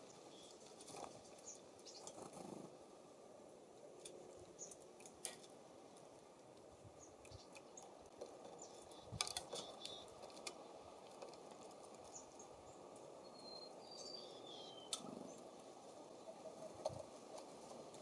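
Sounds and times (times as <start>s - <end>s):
breeze outdoors: 0.0s - 18.0s.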